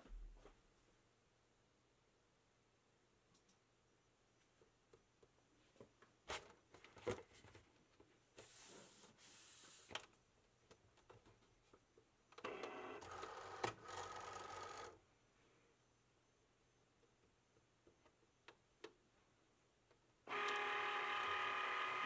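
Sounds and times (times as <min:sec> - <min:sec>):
cutting machine motor whirring: 0:20.3 - 0:22.0.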